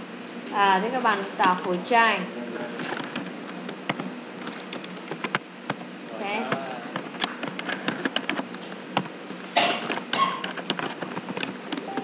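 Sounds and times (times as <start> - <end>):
keyboard keys clicking: 2.9 - 5.8, 6.9 - 12.0.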